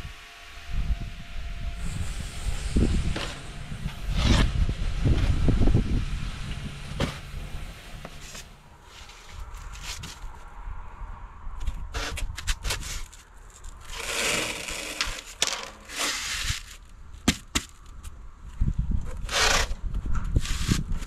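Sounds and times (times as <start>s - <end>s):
cutter scraping foam board: 1.8s - 4.7s, 11.9s - 17.4s, 19.1s - 20.9s.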